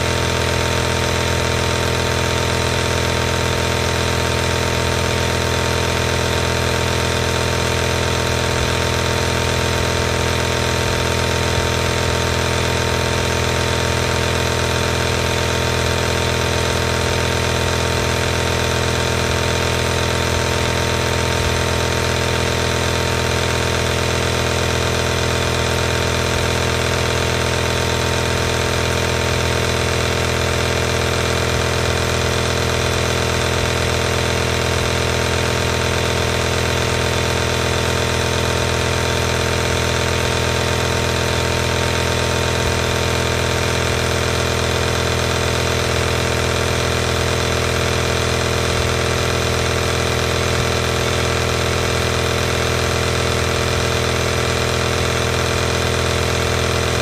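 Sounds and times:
air compressor humming: 0.0 - 57.0.

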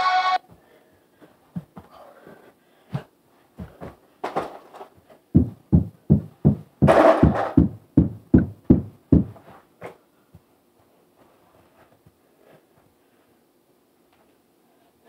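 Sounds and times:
feet stamping on floor: 0.5 - 2.0, 2.9 - 4.5, 5.3 - 9.6.

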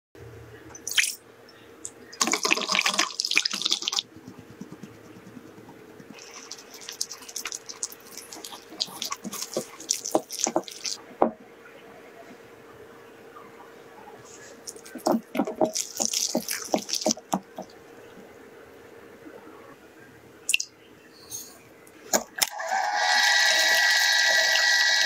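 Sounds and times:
whisk stirring dry mix: 2.2 - 11.0, 14.7 - 17.7.

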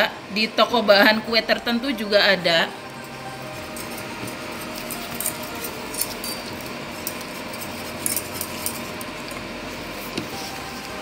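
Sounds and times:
steady background hum: 0.0 - 11.0
glass bowl and utensils clinking: 2.8 - 11.0.

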